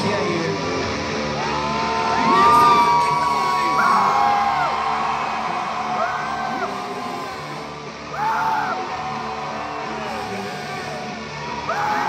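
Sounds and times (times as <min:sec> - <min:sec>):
vocals: 0:00.0 - 0:01.2, 0:02.2 - 0:04.5
live hard rock band: 0:00.0 - 0:12.0.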